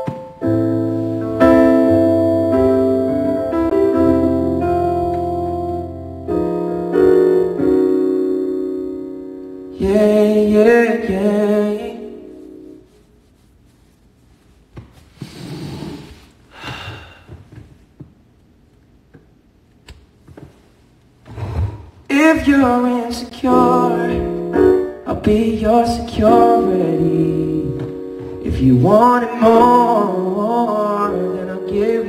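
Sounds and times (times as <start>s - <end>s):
electronic keyboard chords: 0.0s - 13.0s, 22.2s - 32.0s
man singing into microphone: 9.7s - 12.3s, 22.1s - 32.0s.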